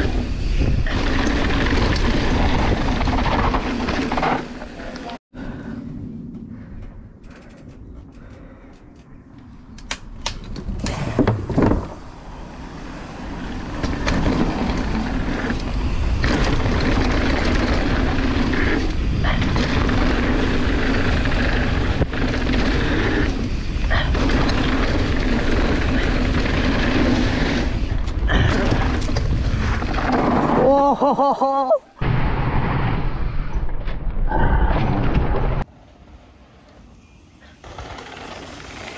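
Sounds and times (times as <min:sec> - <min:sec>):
wind rush over microphone: 0:00.0 - 0:03.6.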